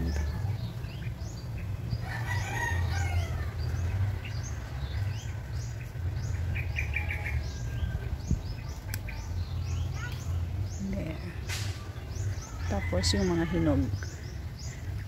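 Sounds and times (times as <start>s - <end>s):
small birds chirping: 0.0s - 15.0s
rooster crowing: 2.0s - 3.6s, 12.6s - 13.9s.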